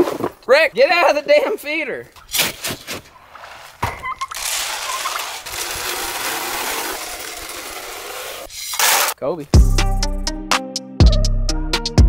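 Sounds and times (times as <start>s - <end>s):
dry feed pouring into trough: 4.4s - 9.2s.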